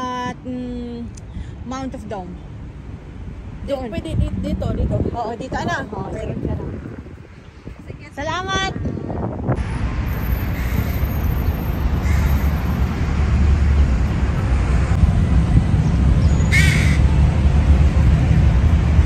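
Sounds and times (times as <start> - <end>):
crow cawing: 10.6 - 10.9, 12.0 - 12.4, 16.5 - 17.0.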